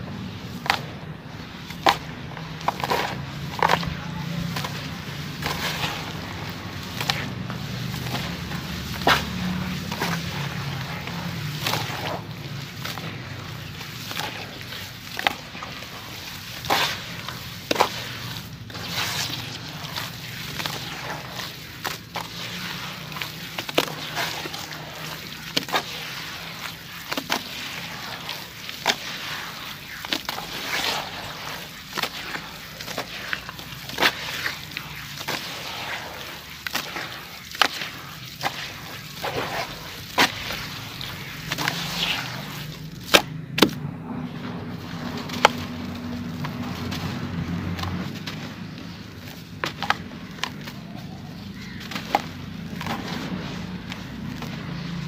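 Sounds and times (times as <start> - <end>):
gritty squelching and sloshing: 0.0 - 55.0
wet splat: 4.6 - 43.9, 51.4 - 55.0.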